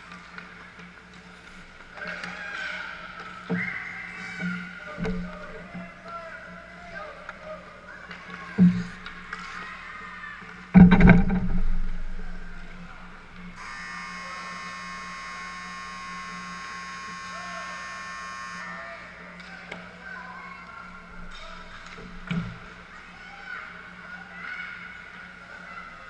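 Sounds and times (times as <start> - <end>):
scoreboard buzzer: 13.6 - 19.1.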